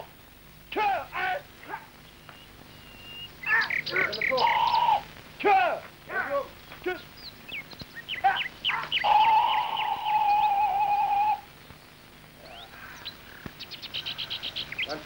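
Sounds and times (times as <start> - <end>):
birds chirping: 0.0 - 15.0
fast bird trill: 2.1 - 5.1, 6.9 - 11.5, 12.4 - 15.0
long whistled bird note: 9.0 - 11.5.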